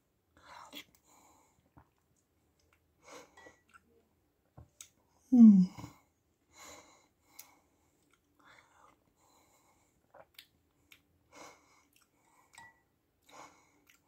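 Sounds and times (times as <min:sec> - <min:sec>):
person humming mm: 0:05.3 - 0:05.9.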